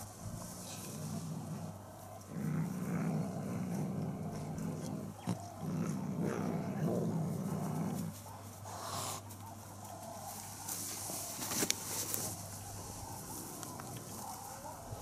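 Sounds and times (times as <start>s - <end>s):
animal growling: 0.2s - 9.2s
scuffling in grass: 6.0s - 15.0s.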